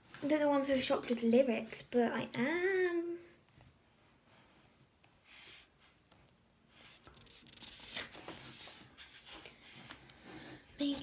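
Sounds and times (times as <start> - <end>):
paper pages rustling: 6.7 - 10.2.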